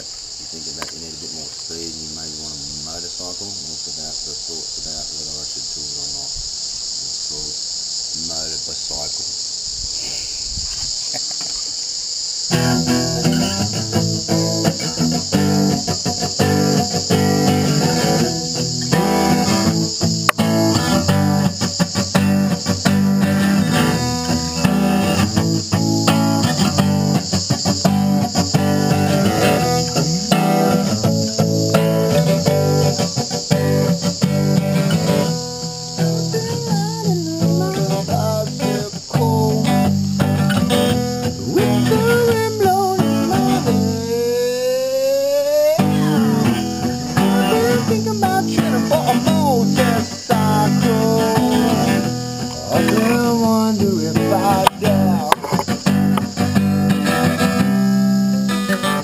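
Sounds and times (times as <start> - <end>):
insect chirring: 0.0 - 59.0
acoustic guitar strummed and picked: 12.5 - 59.0.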